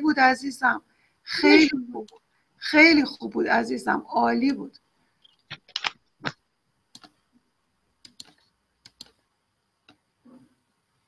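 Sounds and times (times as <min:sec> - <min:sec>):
computer clicks: 0:05.2 - 0:07.2, 0:08.0 - 0:09.2.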